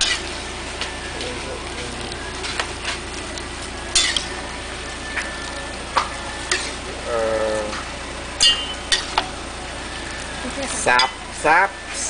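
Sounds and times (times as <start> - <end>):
metal utensils clinking on pot: 3.9 - 4.4, 6.0 - 6.8, 8.4 - 9.3, 10.9 - 11.3.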